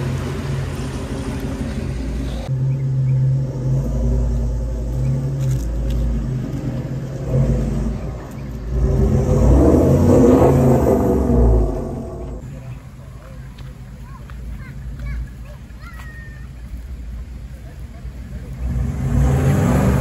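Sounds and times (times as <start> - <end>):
vehicle engine working hard: 0.0 - 13.3, 17.0 - 20.0.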